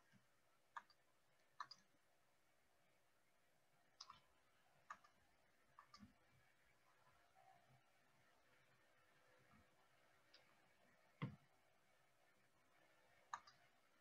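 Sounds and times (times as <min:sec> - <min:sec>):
computer mouse clicks: 0:00.7 - 0:01.9, 0:04.0 - 0:04.2, 0:04.8 - 0:05.2, 0:05.8 - 0:06.2, 0:13.3 - 0:13.7.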